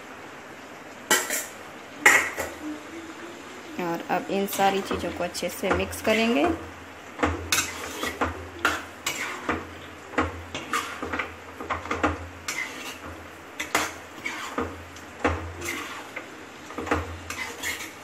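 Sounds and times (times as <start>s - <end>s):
metal spoon scraping a pan: 4.4s - 6.6s, 7.2s - 18.0s.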